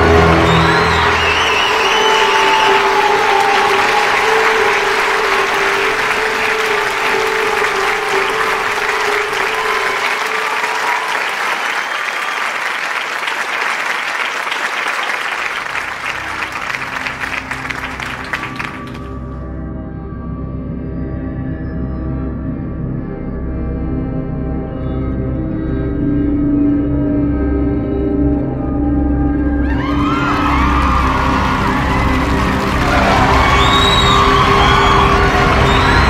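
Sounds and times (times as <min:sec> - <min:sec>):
background music: 0:00.0 - 0:12.0, 0:15.7 - 0:36.0
audience applauding: 0:00.0 - 0:19.2, 0:29.6 - 0:36.0.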